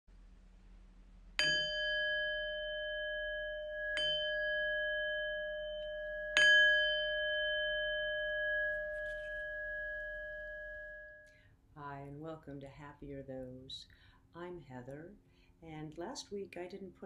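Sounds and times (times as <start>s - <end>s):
bell-like metal chime ringing: 1.4s - 11.4s.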